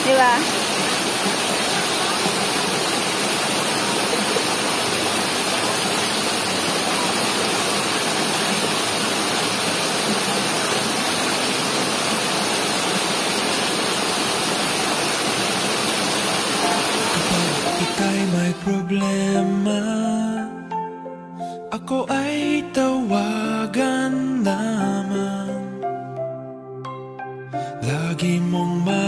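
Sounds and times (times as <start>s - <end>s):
waterfall rushing over boulders: 0.0s - 18.8s.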